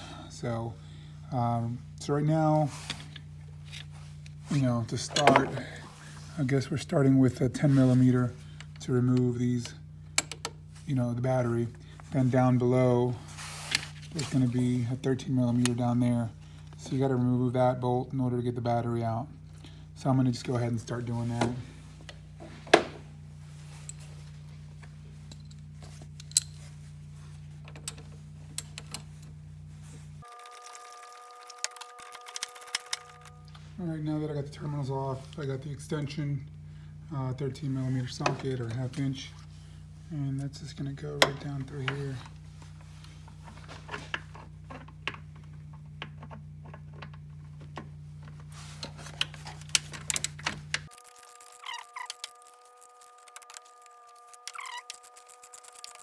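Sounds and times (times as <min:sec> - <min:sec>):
steady low hum: 0:00.0 - 0:56.0
steady high tone: 0:29.8 - 0:36.2, 0:50.9 - 0:56.0.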